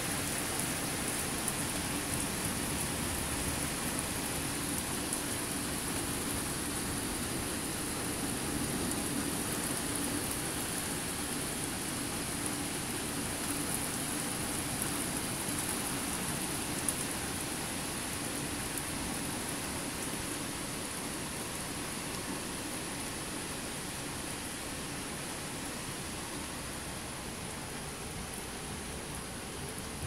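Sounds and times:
heavy rain hissing: 0:00.0 - 0:30.0.

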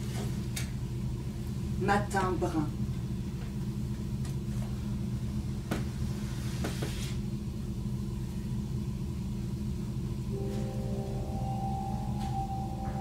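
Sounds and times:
steady low hum: 0:07.3 - 0:13.0.

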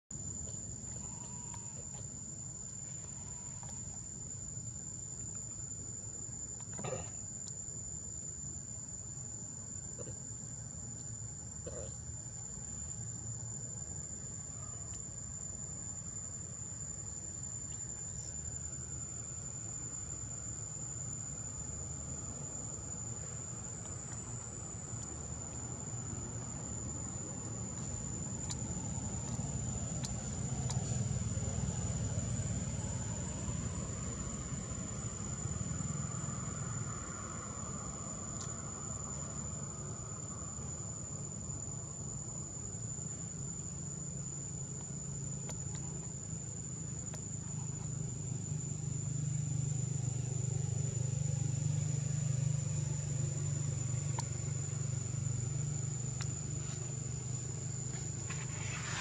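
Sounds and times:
high-pitched insect drone: 0:00.8 - 0:04.0.

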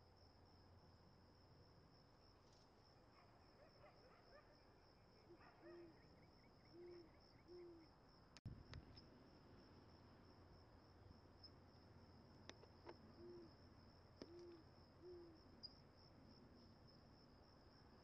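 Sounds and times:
high insect trill: 0:00.2 - 0:18.0
owl hooting: 0:06.7 - 0:07.9, 0:13.2 - 0:13.5, 0:14.2 - 0:15.4.

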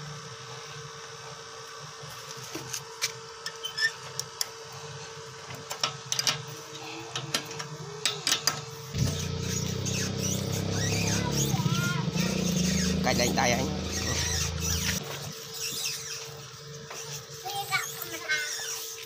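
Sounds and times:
small motor running: 0:00.2 - 0:19.0
low engine rumble: 0:08.9 - 0:15.3.

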